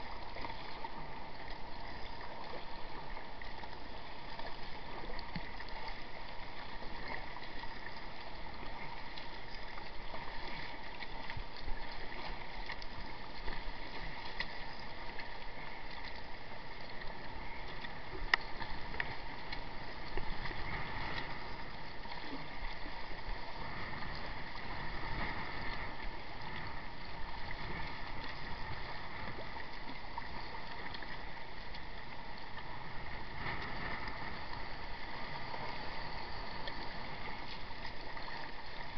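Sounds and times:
water splashing along kayak hull: 0.0 - 38.9.

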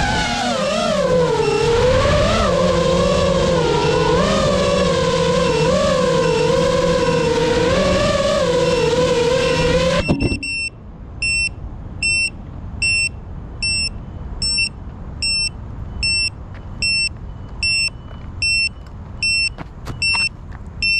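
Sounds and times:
drone beeper short beeps: 9.5 - 20.9.

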